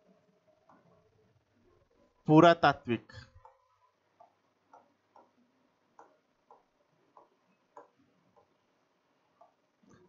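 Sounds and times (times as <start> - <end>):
stylus ticks on a screen: 3.4 - 10.0.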